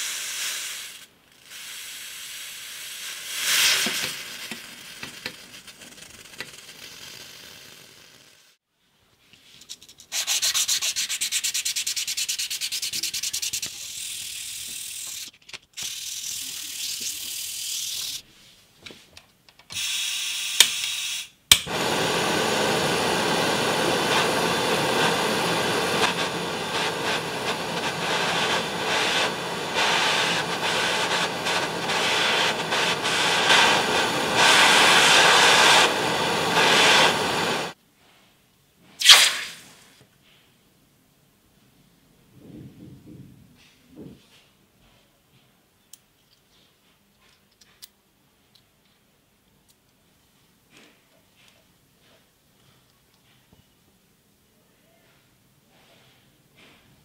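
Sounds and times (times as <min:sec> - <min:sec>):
butane torch hissing: 0:00.0 - 0:08.6, 0:21.7 - 0:37.8, 0:39.0 - 0:39.8
blade scraping on sandpaper: 0:10.1 - 0:18.2, 0:25.8 - 0:37.2
sharp click: 0:21.5 - 0:21.7.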